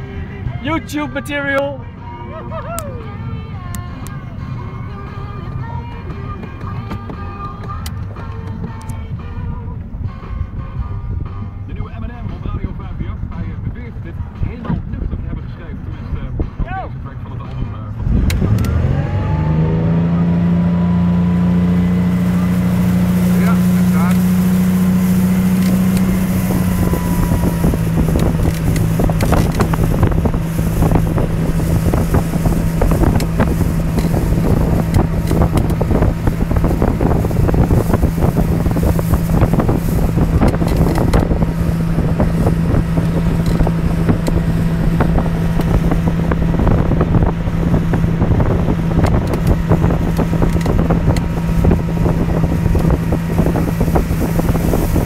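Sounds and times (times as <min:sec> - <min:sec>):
motorboat engine drone: 0:00.0 - 0:55.0
wind buffeting microphone: 0:05.4 - 0:55.0
wake rushing: 0:17.9 - 0:55.0.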